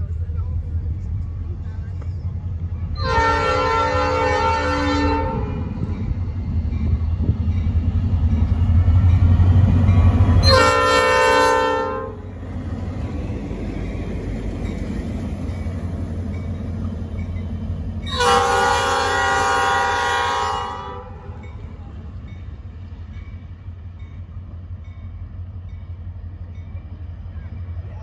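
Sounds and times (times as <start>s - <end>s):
diesel locomotive engine: 0.0s - 28.0s
train air horn chord: 3.0s - 5.7s, 10.4s - 12.2s, 18.1s - 21.3s.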